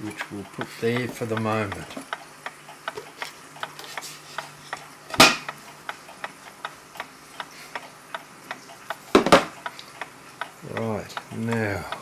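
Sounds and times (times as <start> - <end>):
clock ticking: 0.0 - 3.8, 5.4 - 9.0, 9.6 - 12.0
loud knock: 9.2 - 9.5.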